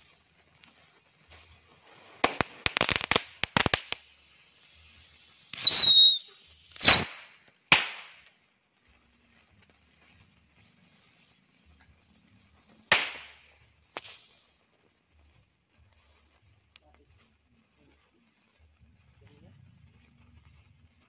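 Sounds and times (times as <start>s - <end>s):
firecracker bursts: 0.0s - 8.5s, 12.7s - 14.6s
firecrackers cracking: 0.0s - 21.0s
firework whistle: 2.1s - 8.1s.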